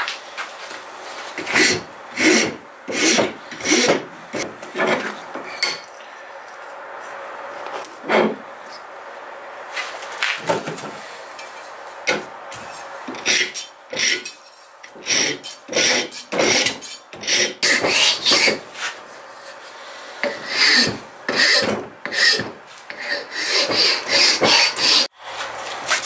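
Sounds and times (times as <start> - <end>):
hand file rasping on wood: 1.4 - 4.0, 15.0 - 18.6, 20.2 - 25.1.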